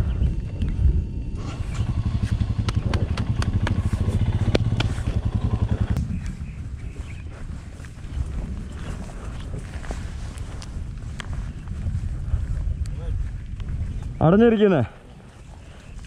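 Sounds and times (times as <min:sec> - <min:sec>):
motorcycle engine thumping: 0:01.8 - 0:06.1
sharp clicks and clatter: 0:01.8 - 0:06.1.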